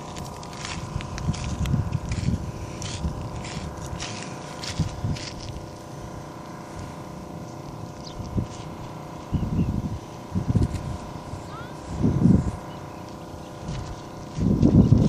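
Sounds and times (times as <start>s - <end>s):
crunching and rustling: 0.0s - 5.8s
low mechanical hum: 0.0s - 15.0s.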